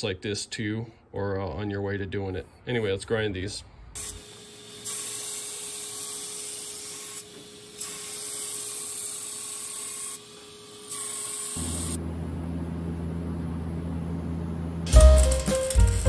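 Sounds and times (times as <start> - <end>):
abrasive wheel hissing on steel: 4.0 - 12.0, 14.9 - 16.0
grinder motor whine: 10.0 - 16.0
music: 14.9 - 16.0.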